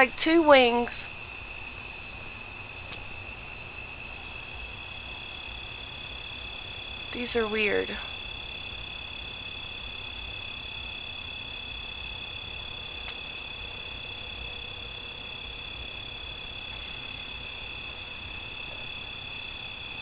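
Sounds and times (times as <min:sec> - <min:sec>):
insects trilling: 0:00.0 - 0:20.0.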